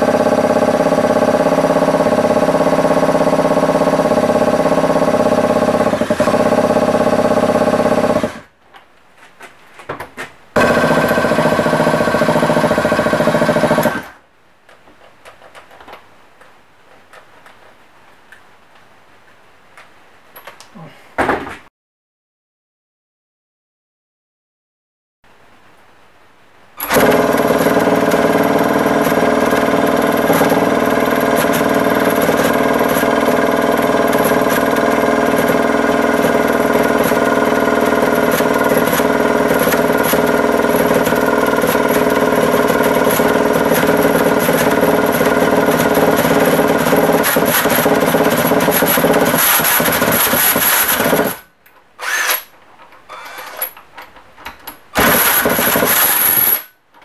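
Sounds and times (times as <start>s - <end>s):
cordless drill turning engine over: 10.6s - 14.2s, 26.8s - 52.5s, 53.1s - 53.8s, 55.0s - 56.8s
short drill bursts: 48.5s - 51.4s, 52.0s - 52.5s, 53.1s - 53.7s, 55.0s - 56.7s.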